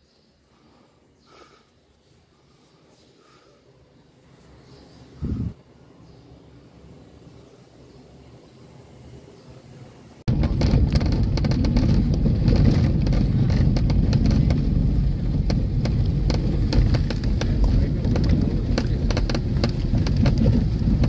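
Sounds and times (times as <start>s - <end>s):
tyres rumbling on gravel road: 10.2s - 21.0s.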